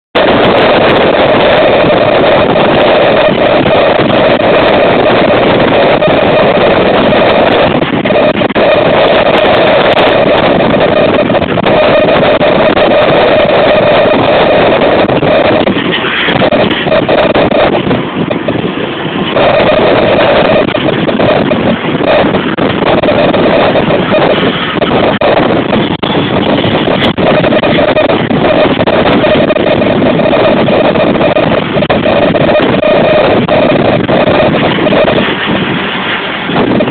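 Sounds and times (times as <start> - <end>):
wind blasting on microphone: 0.1 - 36.9.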